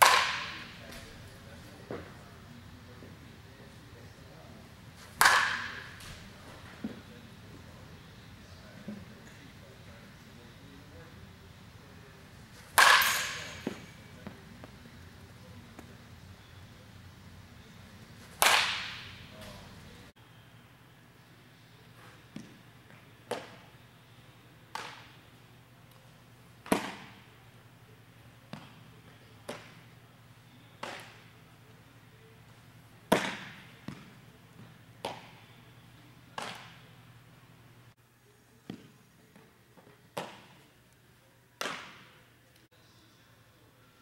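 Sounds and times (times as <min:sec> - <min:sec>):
baseballs cracking against gloves: 0:00.0 - 0:01.1, 0:05.0 - 0:06.2, 0:12.6 - 0:14.8, 0:18.2 - 0:19.6, 0:24.7 - 0:25.2, 0:26.6 - 0:27.2, 0:29.4 - 0:29.8, 0:30.8 - 0:31.3, 0:33.1 - 0:34.2, 0:36.4 - 0:36.8.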